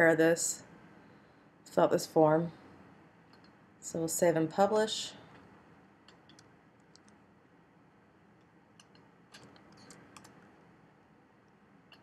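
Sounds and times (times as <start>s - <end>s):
mouse and keyboard clicks: 8.8s - 10.4s.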